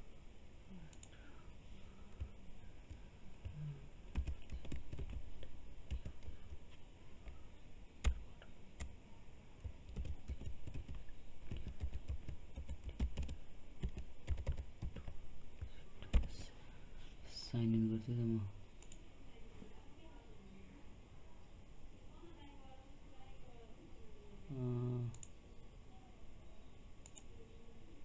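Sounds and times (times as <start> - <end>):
computer keyboard typing: 2.1 - 6.6, 8.0 - 9.0, 9.6 - 16.5, 27.0 - 27.3.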